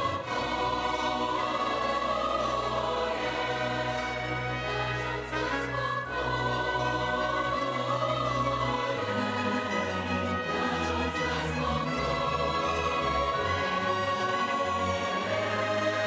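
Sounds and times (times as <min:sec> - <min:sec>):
choir singing a hymn: 0:00.0 - 0:16.0
orchestra playing: 0:00.0 - 0:16.0.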